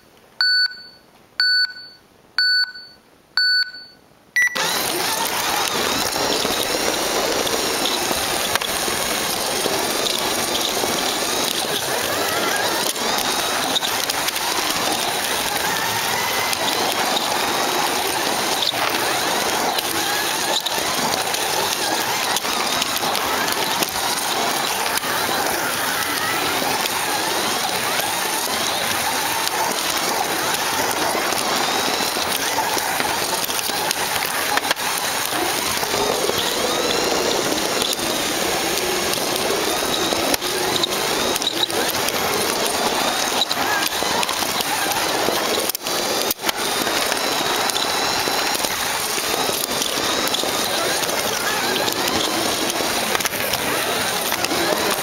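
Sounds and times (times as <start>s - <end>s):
short electronic beeps: 0.4s - 4.7s
slot car motor whirring: 4.5s - 55.0s.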